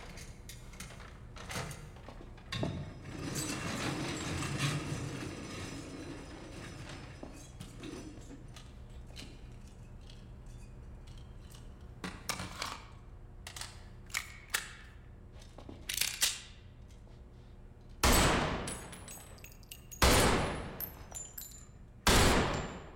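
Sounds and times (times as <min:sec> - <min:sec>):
handgun handling clicks: 0:13.4 - 0:15.0, 0:15.8 - 0:17.0
pistol shots echoing indoors: 0:18.0 - 0:22.9.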